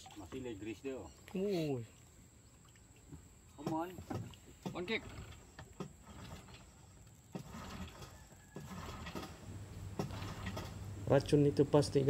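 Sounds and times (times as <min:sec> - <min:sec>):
outboard motor humming: 0:03.0 - 0:11.6
recoil starter cord yanks: 0:10.0 - 0:10.8.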